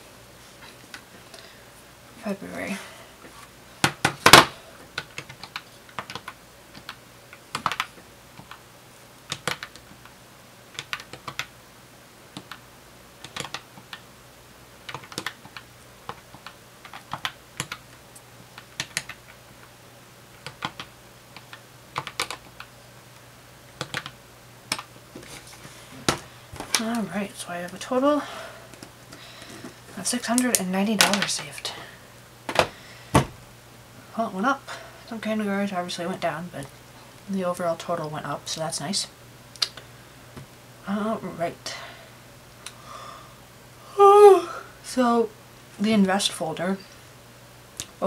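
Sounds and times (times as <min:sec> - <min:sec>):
calculator keys clicking: 0:05.0 - 0:07.0, 0:09.3 - 0:09.8, 0:20.4 - 0:22.7.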